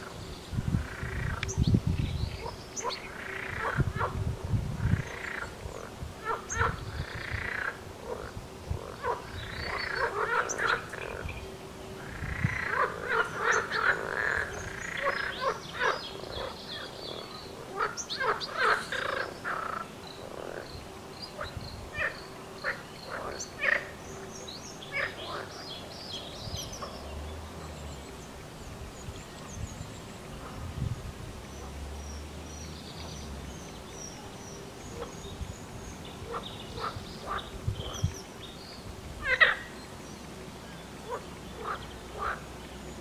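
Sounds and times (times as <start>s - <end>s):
frogs croaking: 0.0s - 1.6s, 2.4s - 4.2s, 4.8s - 28.3s, 31.6s - 40.0s, 40.7s - 43.0s.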